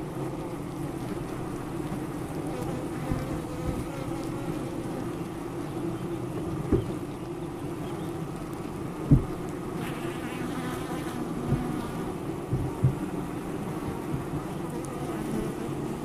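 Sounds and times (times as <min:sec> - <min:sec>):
bees buzzing: 0:00.0 - 0:16.0
dull knocks: 0:09.1 - 0:09.4, 0:12.5 - 0:13.1.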